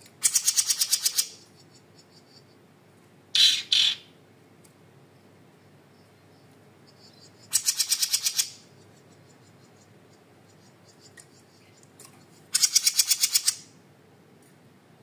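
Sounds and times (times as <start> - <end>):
songbird chattering trills: 0.2 - 2.6, 3.4 - 4.1, 5.9 - 13.7.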